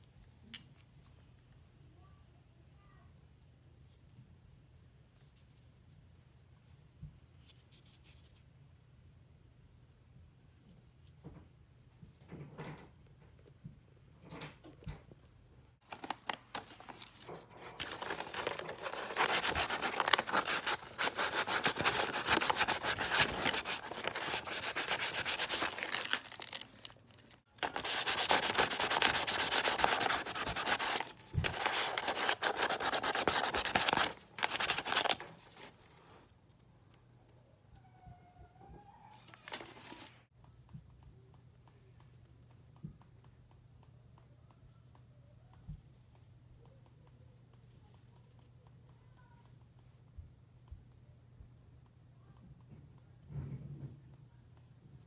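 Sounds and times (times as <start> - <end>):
hand rubbing on wood: 17.9 - 26.1, 27.6 - 34.6.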